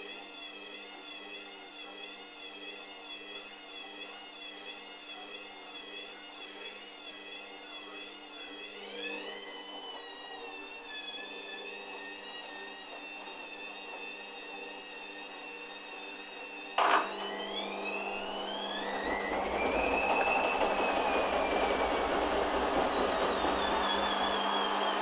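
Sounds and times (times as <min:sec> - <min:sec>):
washing machine motor whining: 0:05.9 - 0:25.0.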